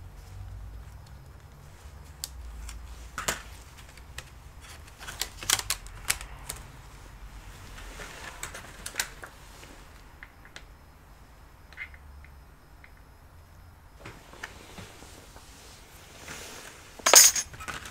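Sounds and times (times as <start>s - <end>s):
laptop keyboard and casing clicks: 0.8s - 6.8s, 8.2s - 9.3s.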